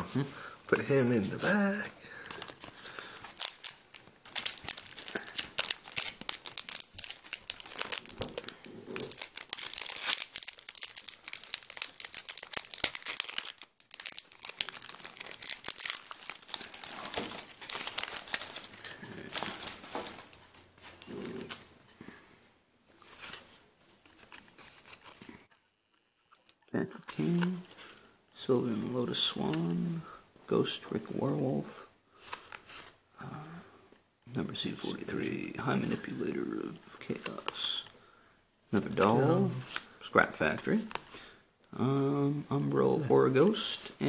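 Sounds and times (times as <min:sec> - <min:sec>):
foil wrapper crinkling and tearing: 0:02.3 - 0:21.6.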